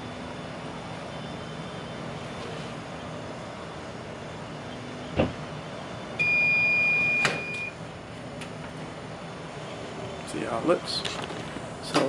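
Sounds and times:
timer alarm high beep: 6.2s - 7.8s.

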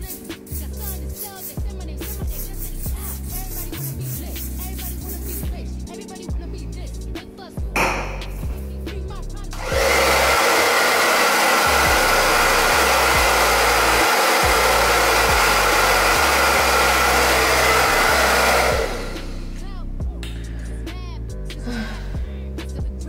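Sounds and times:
background hip-hop music: 0.0s - 10.2s, 11.8s - 23.0s
hair dryer blowing: 9.6s - 19.6s.

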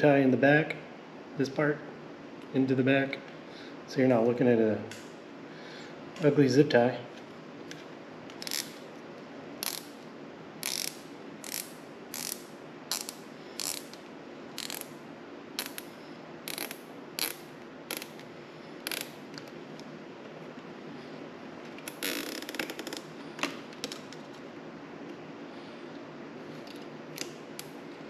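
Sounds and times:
zip tie ratcheting: 8.3s - 8.8s, 9.6s - 10.0s, 10.6s - 15.0s, 15.6s - 15.9s, 16.5s - 19.6s, 21.8s - 23.1s.

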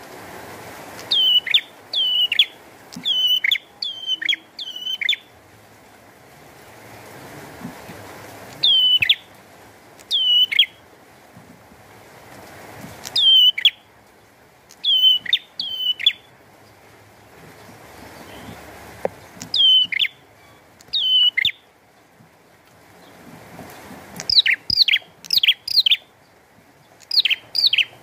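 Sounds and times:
rain hiss: 0.0s - 28.0s
bird singing sharp calls: 1.0s - 5.3s, 8.6s - 9.3s, 10.0s - 10.8s, 13.0s - 13.8s, 14.7s - 16.3s, 18.1s - 18.6s, 19.4s - 21.7s, 24.2s - 26.1s, 26.9s - 28.0s.

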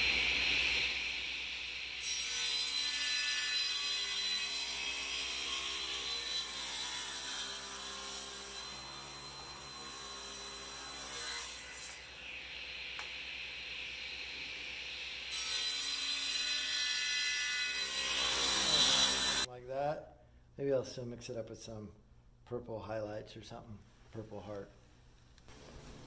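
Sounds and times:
table saw cutting wood: 0.0s - 19.5s
saw blade whine: 5.6s - 16.7s, 17.5s - 19.5s.

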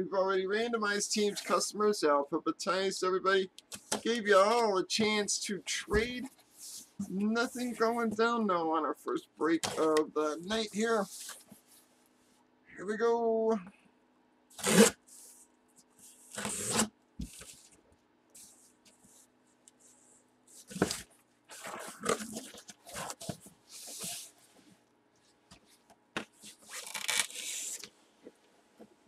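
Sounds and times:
packing tape tearing: 14.5s - 15.0s, 16.3s - 17.5s, 26.4s - 27.9s.

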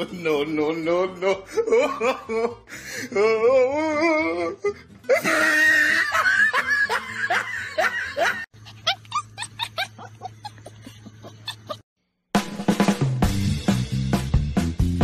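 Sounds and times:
people laughing: 1.2s - 2.6s, 5.1s - 11.8s
puppy yipping: 8.6s - 10.6s.

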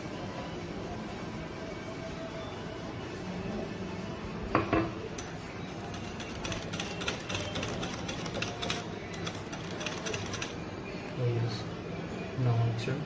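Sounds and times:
utensil clinking against bowl: 4.6s - 10.6s
utensil stirring thick sauce: 5.6s - 10.6s.

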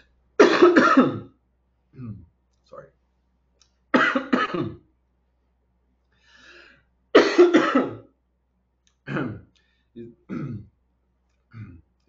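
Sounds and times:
man coughing: 0.4s - 1.3s, 4.0s - 4.8s, 7.2s - 8.0s, 9.1s - 9.5s, 10.3s - 10.7s.

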